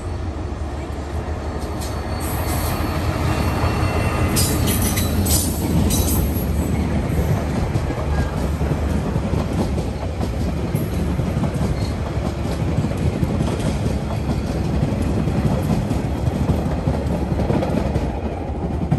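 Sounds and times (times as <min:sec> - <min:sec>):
train wheels rumbling and clacking: 0:00.0 - 0:18.9
metallic wheel squeals: 0:01.6 - 0:06.4.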